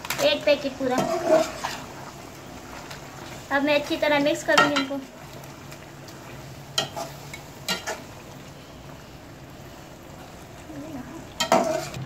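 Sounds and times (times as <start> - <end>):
low frying sizzle: 0.0 - 12.0
metal spatula scraping pan: 0.8 - 1.9, 11.4 - 12.0.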